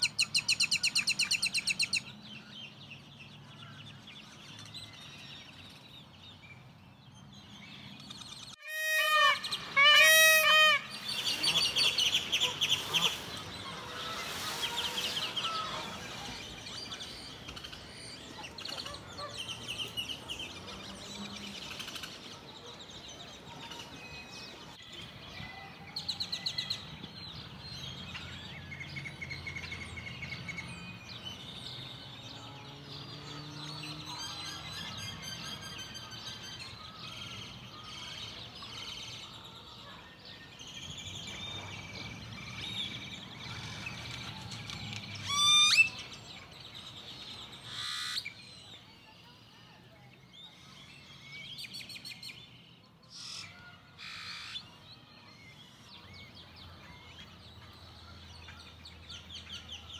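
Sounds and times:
birds chirping and whistling: 0.0s - 22.3s, 33.5s - 49.3s, 50.2s - 59.9s.

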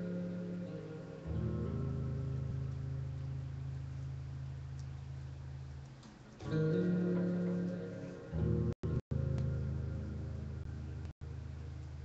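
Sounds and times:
low guitar chord drone: 0.0s - 5.7s, 6.4s - 11.9s.

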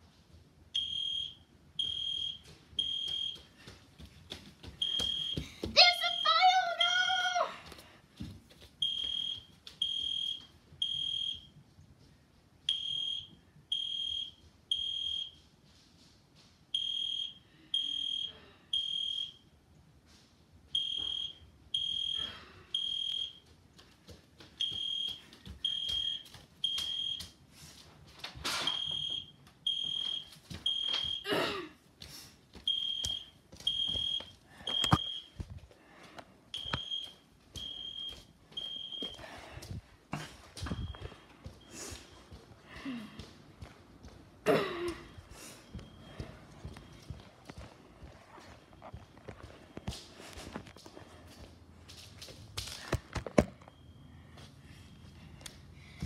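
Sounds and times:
fire alarm beeping: 0.7s - 3.5s, 4.8s - 7.2s, 8.8s - 11.6s, 12.7s - 15.5s, 16.7s - 19.6s, 20.7s - 23.5s, 24.6s - 27.4s, 28.6s - 31.3s, 32.7s - 35.4s, 36.5s - 39.2s, 40.6s - 42.4s, 45.1s - 47.2s, 53.6s - 55.2s.

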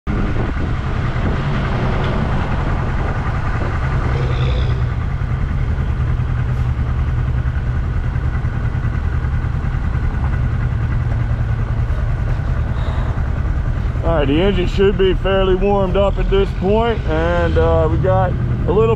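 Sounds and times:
motorcycle engine rumbling: 0.0s - 18.9s.

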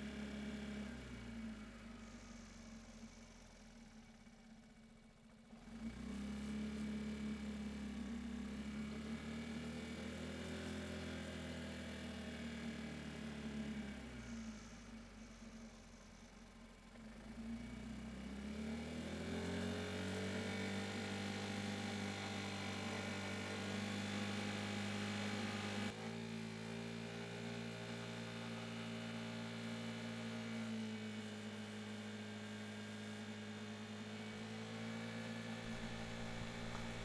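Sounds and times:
scooter engine humming: 35.6s - 37.0s.

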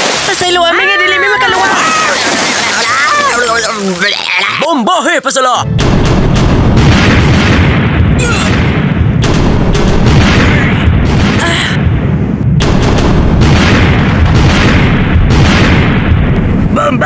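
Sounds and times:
cannon fire and explosions: 5.7s - 17.0s
heavy rumble: 5.7s - 17.0s.

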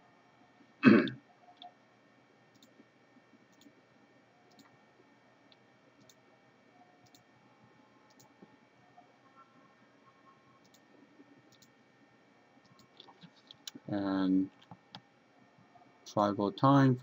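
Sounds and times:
faint computer mouse clicks: 7.0s - 7.2s, 8.1s - 8.3s.

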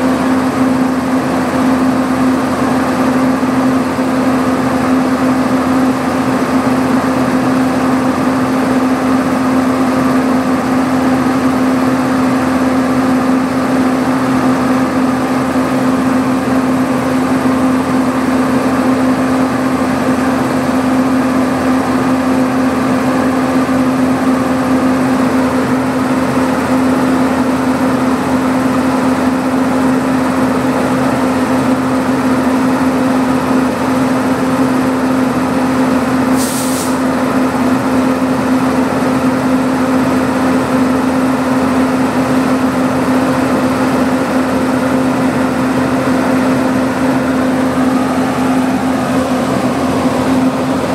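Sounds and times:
locomotive machinery humming: 0.0s - 50.9s
compressed air escaping: 36.3s - 37.0s.

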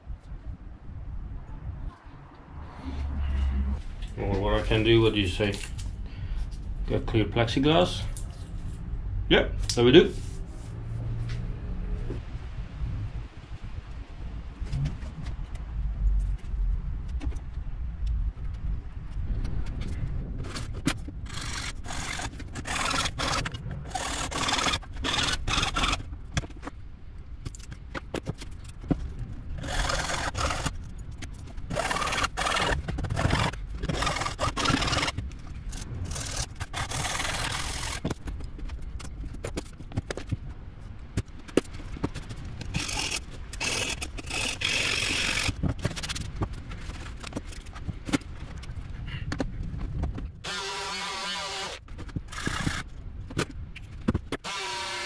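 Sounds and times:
hand saw cutting plexiglass: 21.3s - 26.0s, 29.6s - 30.8s, 31.7s - 35.2s, 36.1s - 38.1s, 42.7s - 45.6s, 50.4s - 51.8s, 54.4s - 55.0s.

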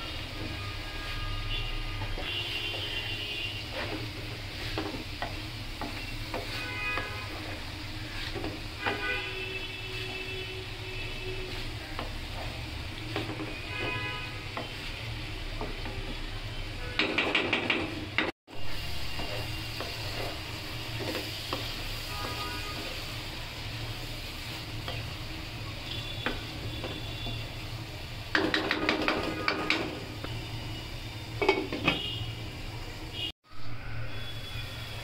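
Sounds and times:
vegetables sizzling in a wok: 0.0s - 35.0s
wooden spatula scraping pan: 0.3s - 16.3s, 18.9s - 23.2s.

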